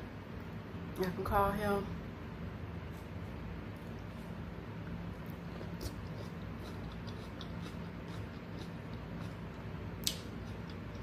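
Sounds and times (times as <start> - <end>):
low steady hum: 0.0 - 11.0
wet mouth clicks eating: 5.3 - 11.0.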